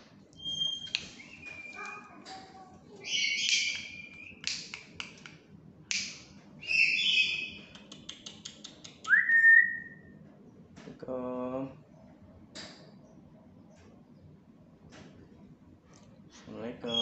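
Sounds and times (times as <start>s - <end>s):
parrot screechy calls: 0.4s - 2.1s, 3.0s - 4.3s, 6.6s - 7.6s
sharp clicks: 7.7s - 9.2s.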